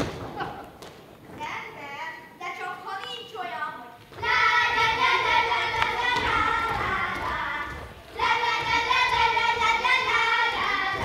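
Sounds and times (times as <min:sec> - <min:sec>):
children singing folk song: 0:04.0 - 0:11.0.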